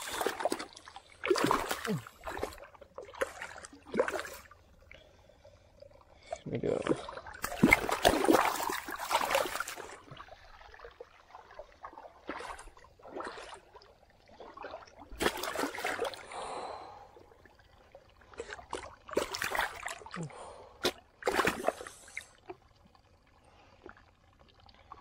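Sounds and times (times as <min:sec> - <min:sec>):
fish thrashing in splashing water: 0:00.0 - 0:04.5, 0:07.4 - 0:10.8, 0:14.4 - 0:16.2, 0:20.8 - 0:22.1.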